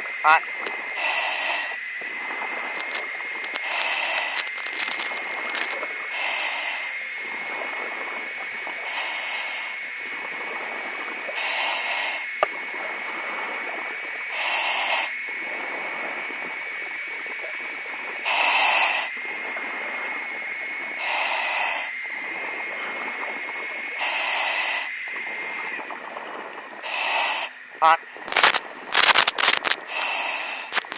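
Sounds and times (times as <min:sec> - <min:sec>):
steady high whine: 0:00.0 - 0:30.9
cutting torch crackle: 0:02.6 - 0:07.0, 0:26.8 - 0:30.9.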